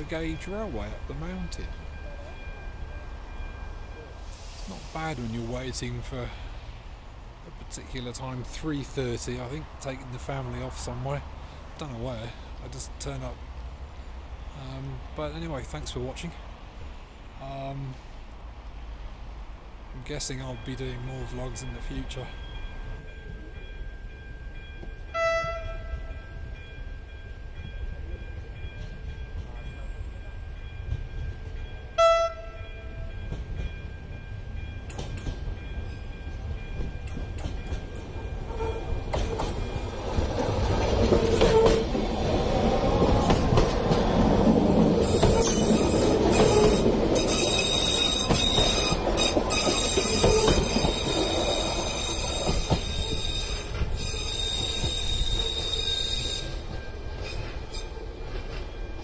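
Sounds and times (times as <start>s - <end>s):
train passing rumble: 0.0s - 59.0s
train horn toots: 25.1s - 26.4s, 31.9s - 33.1s, 38.4s - 39.0s, 52.0s - 56.6s
wheels clicking over rail joints: 34.8s - 59.0s
high wheel squeal: 45.0s - 58.0s.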